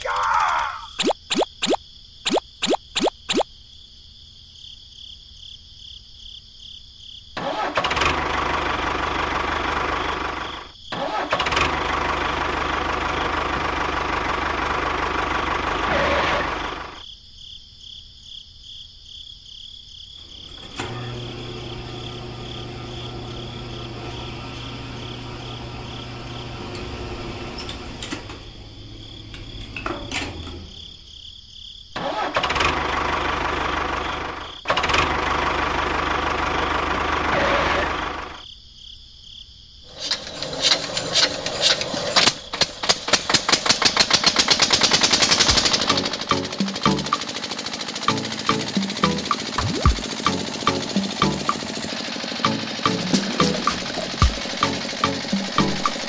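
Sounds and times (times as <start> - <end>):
small tractor engine running: 7.4 - 17.0, 20.3 - 30.7, 32.0 - 38.4, 39.9 - 56.0.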